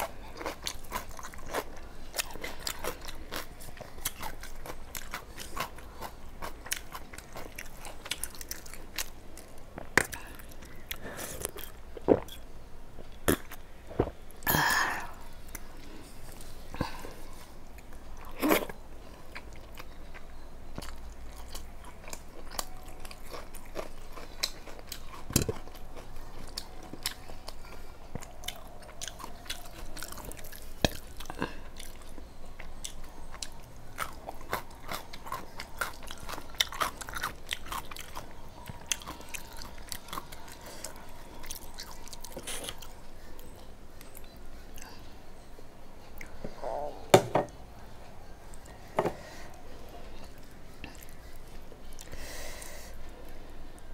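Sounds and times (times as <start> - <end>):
person chewing: 0.0 - 12.4, 13.1 - 45.0
food crunching: 0.0 - 12.5, 17.6 - 44.9.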